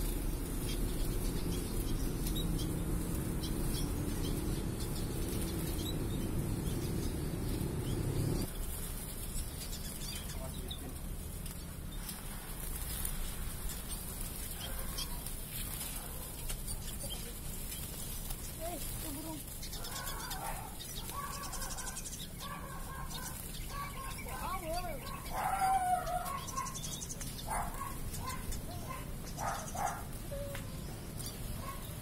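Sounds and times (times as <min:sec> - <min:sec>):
finches chirping: 0:00.0 - 0:08.5, 0:16.6 - 0:32.0
low steady rumble: 0:00.0 - 0:08.5.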